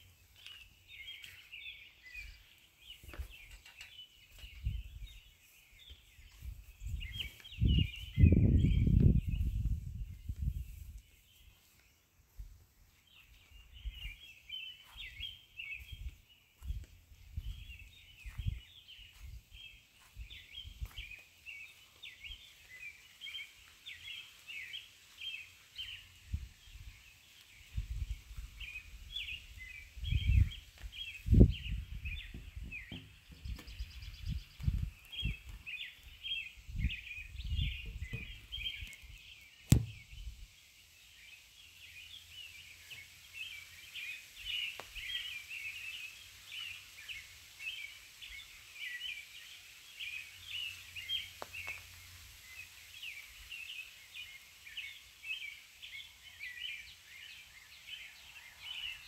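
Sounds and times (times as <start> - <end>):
small birds chirping: 0.0 - 59.0
sharp knock: 39.7 - 40.0.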